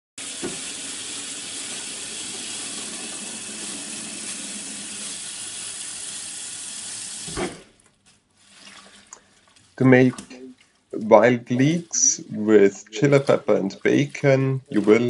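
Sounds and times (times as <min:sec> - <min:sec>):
tap water running into sink: 0:00.2 - 0:07.5.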